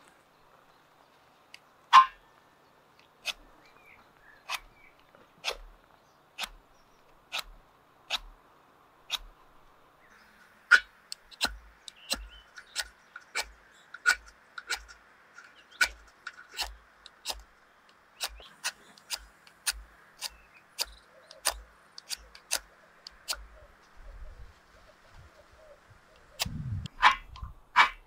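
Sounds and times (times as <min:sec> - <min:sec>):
knife scraping fire steel: 0:10.7 - 0:17.4.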